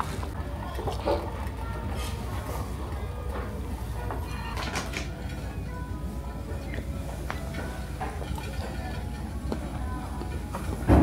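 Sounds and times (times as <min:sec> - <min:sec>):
tableware clicking and clinking: 0:04.0 - 0:05.5, 0:06.5 - 0:09.3.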